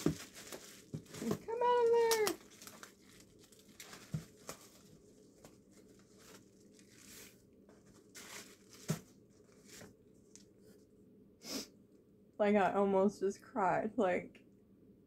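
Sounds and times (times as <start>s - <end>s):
bubble wrap crinkling: 0.0s - 10.5s.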